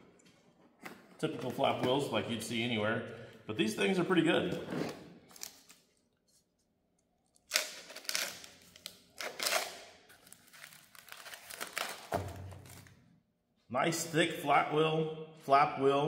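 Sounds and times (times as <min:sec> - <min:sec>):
packaging crinkling and tearing: 0:05.3 - 0:06.1, 0:07.3 - 0:13.0.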